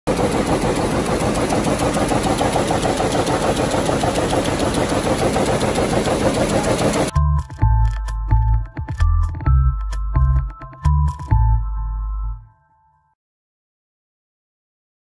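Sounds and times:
loom mechanical clatter: 0.1 - 7.1
steady machine din: 0.1 - 7.6.

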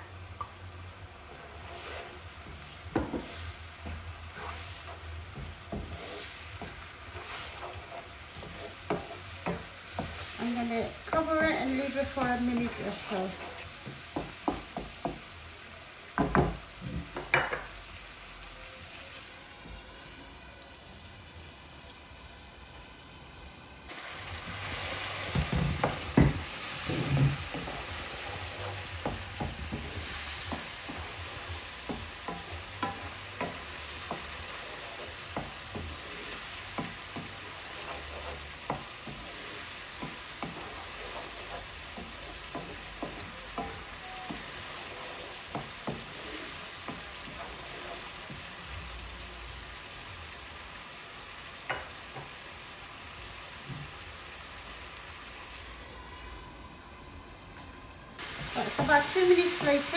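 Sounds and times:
spices sizzling in a frying pan: 0.0 - 56.3, 58.2 - 59.9
spatula stirring and scraping: 0.4 - 15.3, 23.9 - 49.0.

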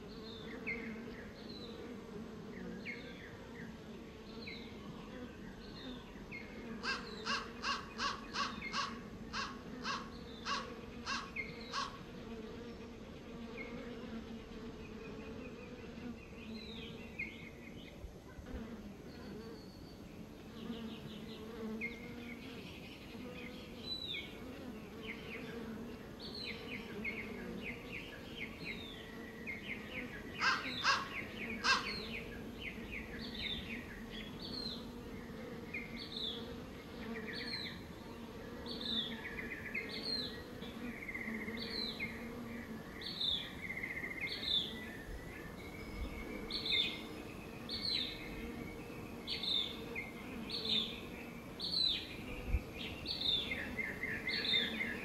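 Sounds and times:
bees buzzing: 0.0 - 55.0
small birds singing: 0.0 - 55.0.

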